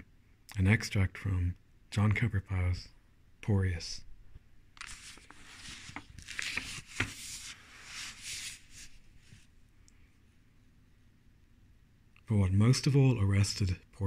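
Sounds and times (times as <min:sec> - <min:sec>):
book pages rustling: 0:04.8 - 0:09.5.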